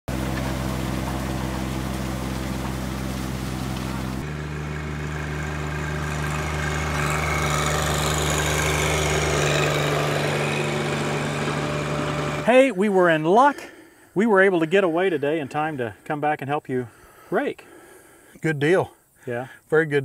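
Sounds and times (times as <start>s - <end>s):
tractor diesel engine running: 0.1s - 13.6s.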